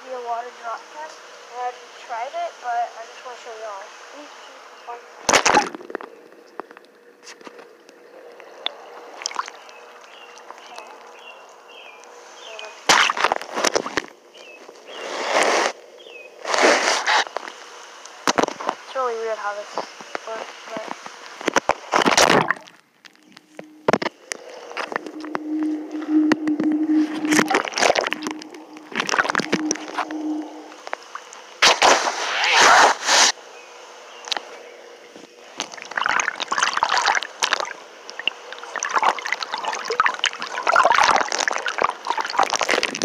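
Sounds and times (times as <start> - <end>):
low steady hum: 0.0 - 31.9, 33.4 - 43.0
water sloshing: 5.3 - 11.2, 22.0 - 31.3, 35.6 - 43.0
small birds chirping: 5.9 - 12.9, 14.2 - 16.4
water splashing: 8.6 - 9.7, 12.8 - 14.1, 22.0 - 22.8, 23.4 - 31.3, 35.6 - 43.0
rushing and crackling bursts: 12.0 - 19.0, 19.6 - 33.4, 35.4 - 43.0.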